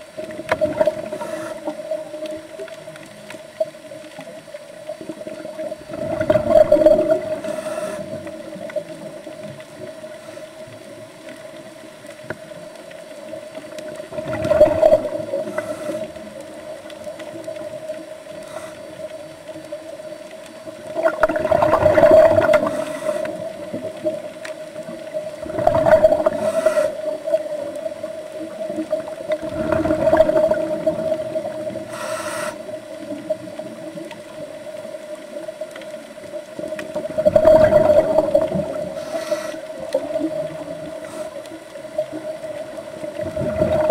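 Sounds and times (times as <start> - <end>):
exhaled bubbles rushing: 0.2 - 2.4, 5.0 - 9.9, 13.9 - 16.3, 20.8 - 31.9, 36.5 - 39.1, 42.0 - 43.9
regulator inhale hiss: 1.0 - 2.2, 7.1 - 8.6, 10.0 - 10.9, 15.3 - 16.6, 18.3 - 19.3, 22.4 - 23.7, 26.2 - 27.3, 31.7 - 32.8, 38.8 - 40.1, 40.9 - 41.6.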